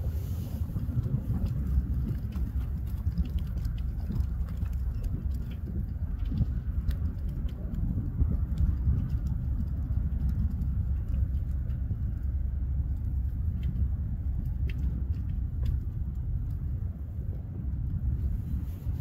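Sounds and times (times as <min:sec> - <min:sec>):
wind rumble on microphone: 0:00.0 - 0:19.0
faint clicks: 0:12.9 - 0:16.8.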